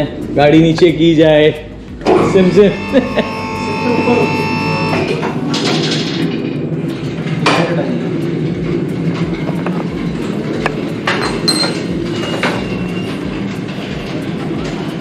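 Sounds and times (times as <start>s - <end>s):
car lift mechanical hum: 0.8s - 15.0s
sharp clicks and clanks: 4.9s - 15.0s.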